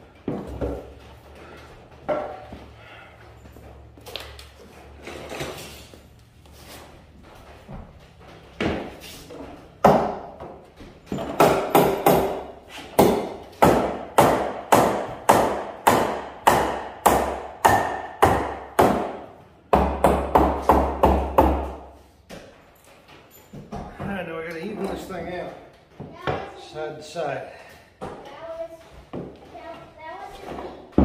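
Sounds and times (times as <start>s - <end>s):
hammer striking nails into wood: 11.1s - 21.9s.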